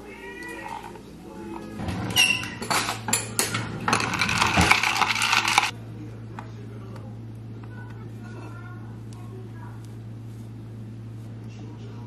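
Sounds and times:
ice and spoon clinking in glass: 3.9 - 5.7.

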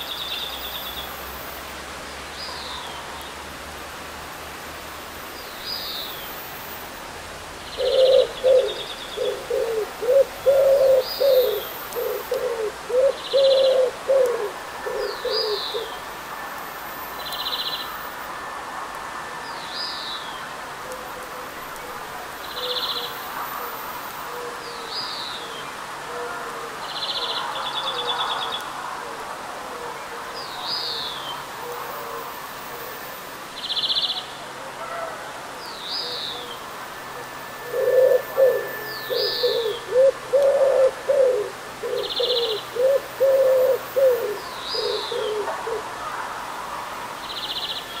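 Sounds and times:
steady rain hiss: 0.0 - 48.0
low cooing calls: 7.6 - 16.1, 20.8 - 33.2, 34.8 - 46.3
bird whistle and buzzy note: 37.1 - 39.8.

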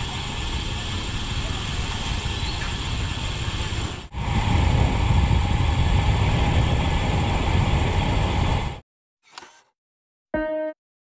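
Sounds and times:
road noise: 0.0 - 8.8
wind rushing over microphone: 3.8 - 8.8.

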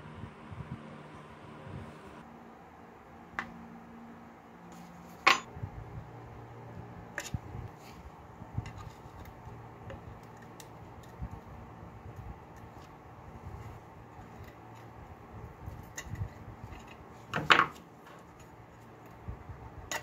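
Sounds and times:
low steady hum: 0.0 - 20.0
screwdriver clicking on clock parts: 8.8 - 11.4.

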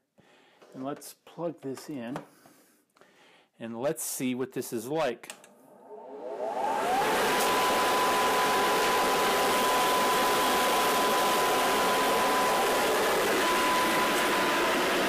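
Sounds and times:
blower air rush with whine: 5.7 - 15.0.

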